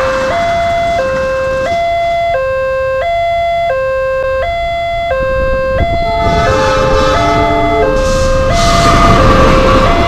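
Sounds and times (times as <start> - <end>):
passing train: 0.0 - 10.0
two-tone crossing alarm: 0.0 - 10.0.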